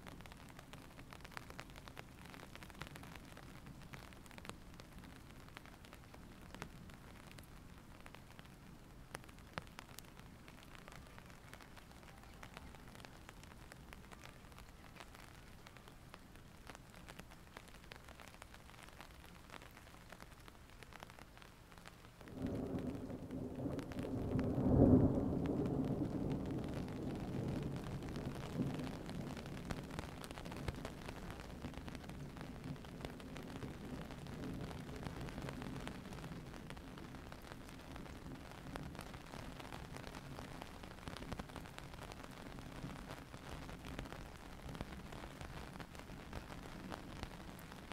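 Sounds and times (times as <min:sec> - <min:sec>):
light rain ticking: 0:00.0 - 0:47.9
thunder rumbling: 0:22.2 - 0:43.9.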